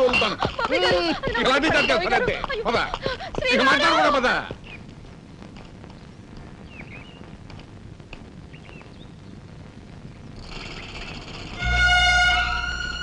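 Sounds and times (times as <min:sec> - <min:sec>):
faint chirping calls: 0:04.6 - 0:04.9, 0:05.9 - 0:07.4, 0:08.4 - 0:11.6
background music high tones: 0:11.6 - 0:13.0.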